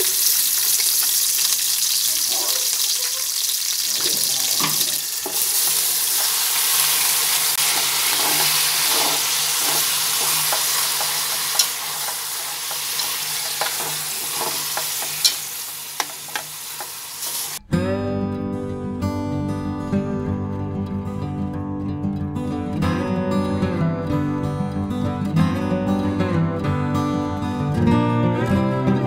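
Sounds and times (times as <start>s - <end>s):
chicken sizzling in hot oil: 0.0s - 17.6s
utensil knocking against pot: 9.6s - 15.4s, 16.0s - 17.0s.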